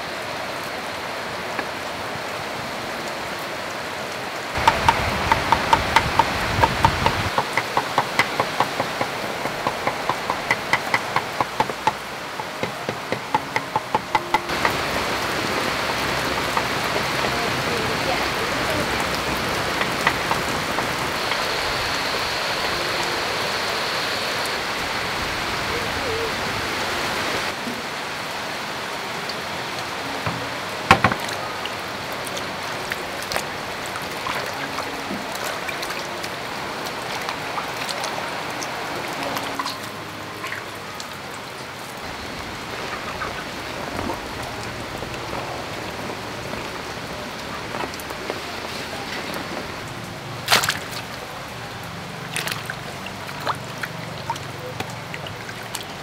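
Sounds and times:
steady rain: 0.0s - 56.0s
water splashing in metal basin: 4.6s - 22.8s, 30.3s - 40.7s, 42.9s - 56.0s.

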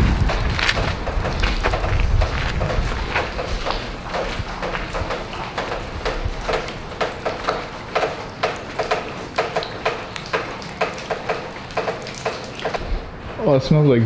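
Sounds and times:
footsteps crunching on concrete: 0.0s - 10.8s.

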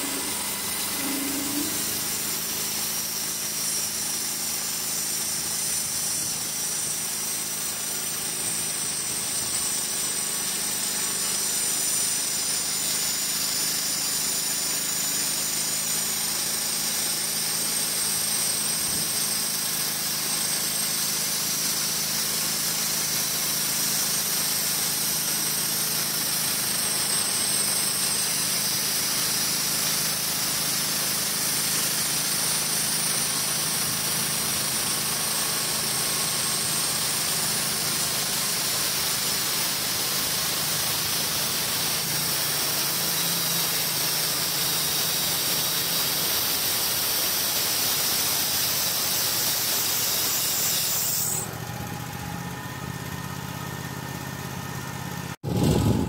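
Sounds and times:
engine hum: 0.0s - 8.6s, 51.3s - 56.0s
band saw cutting log: 0.0s - 51.7s.

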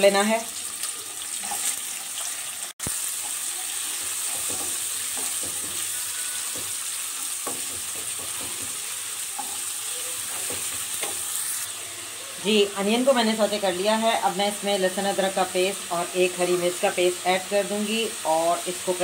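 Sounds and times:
onions sizzling in hot oil: 0.0s - 19.0s
spatula scraping and tapping pan: 3.2s - 11.3s.

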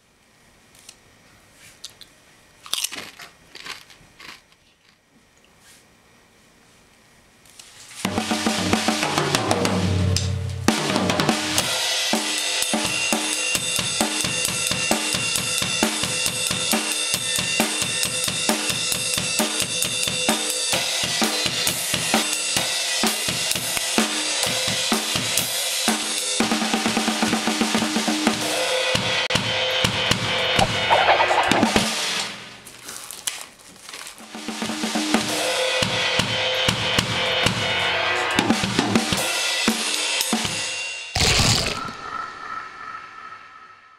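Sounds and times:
drum solo on drum kit: 8.0s - 32.6s, 34.2s - 41.6s.

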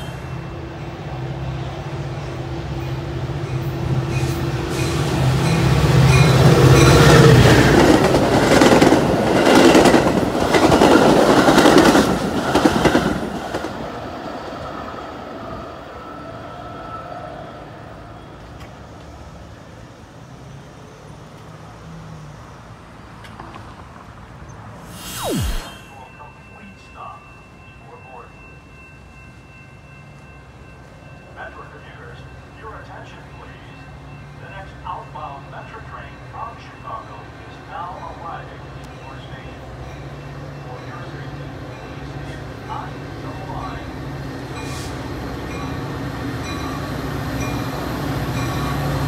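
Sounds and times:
diesel train passing: 0.0s - 23.2s, 24.2s - 49.0s
train wheel squeal: 2.8s - 7.5s, 44.6s - 45.8s.

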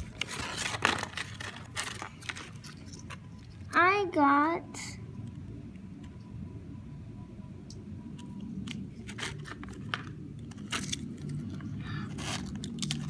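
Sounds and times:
paper crackles: 0.0s - 3.2s
paper leaflet rustling: 0.0s - 3.2s.

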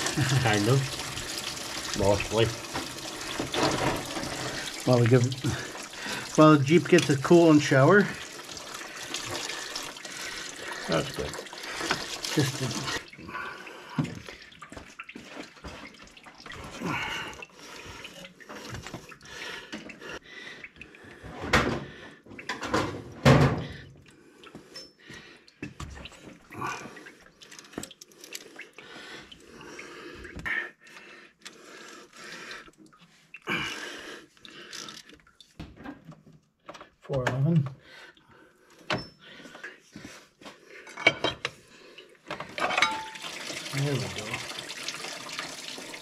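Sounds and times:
coolant dripping: 0.0s - 20.9s, 42.9s - 46.0s.

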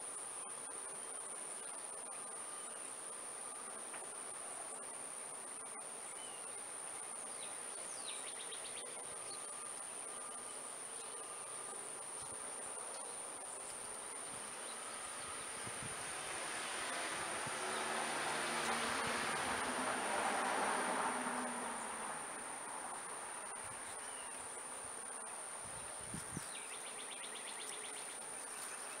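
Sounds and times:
insects buzzing: 0.0s - 29.0s.

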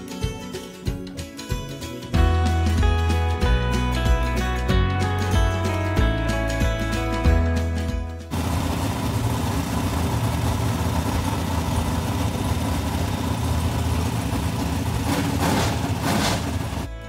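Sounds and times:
race engine idling and revving: 8.3s - 16.9s.

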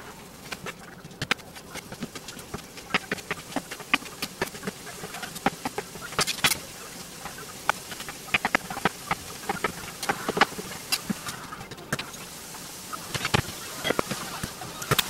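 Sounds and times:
food sizzling in a pan: 1.8s - 15.0s.

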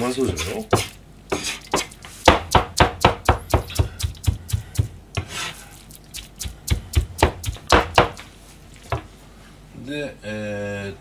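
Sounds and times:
cleaver chopping on plastic board: 0.4s - 5.4s, 6.2s - 8.2s.

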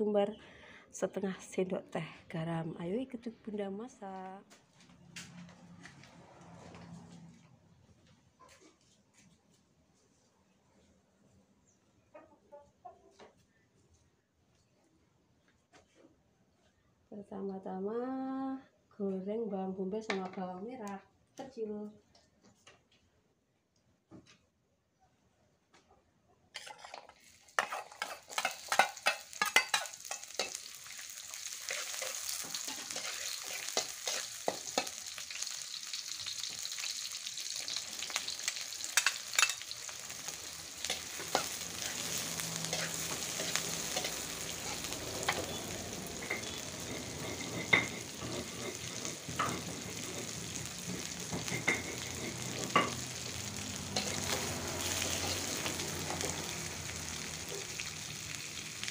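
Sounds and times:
metal spatula scraping wok: 26.6s - 58.9s
onions sizzling in hot oil: 26.6s - 58.9s.

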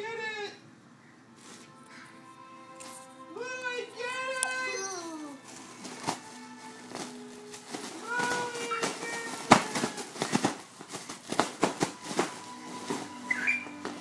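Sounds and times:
cellophane crinkling: 4.1s - 14.0s.

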